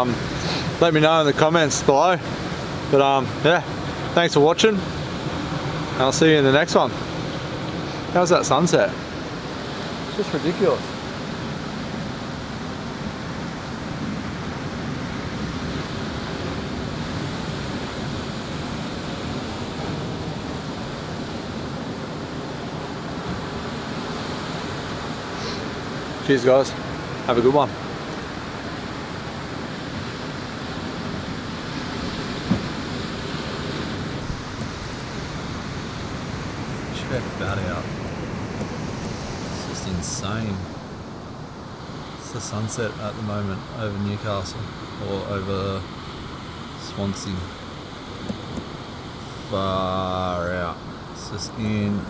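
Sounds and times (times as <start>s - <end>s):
ocean surf breaking: 0.0s - 52.0s
short knock: 32.5s - 32.7s.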